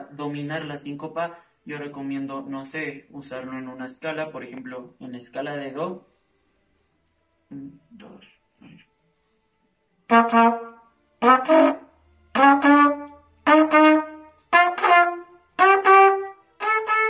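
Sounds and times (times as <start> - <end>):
trumpet playing rising scale: 10.1 - 17.0.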